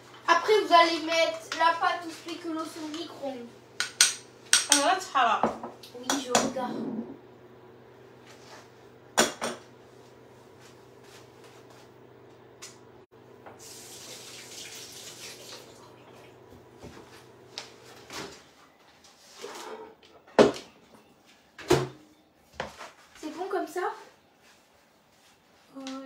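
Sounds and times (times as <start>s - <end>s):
appliance hum: 0.0s - 21.0s
dishes knocking: 3.8s - 7.1s, 9.2s - 9.6s
running water: 13.6s - 16.4s.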